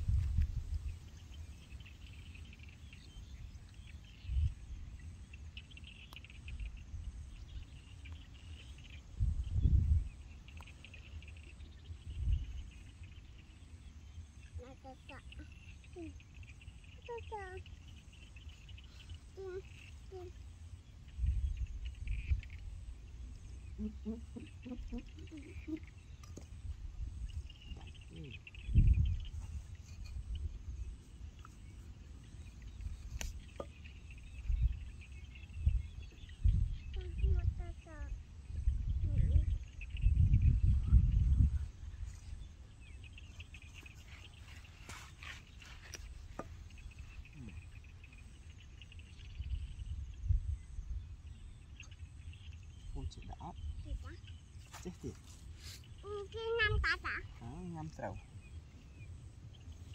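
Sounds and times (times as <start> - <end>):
birds or insects chirping: 0.0 - 59.9
short low calls: 23.7 - 26.0.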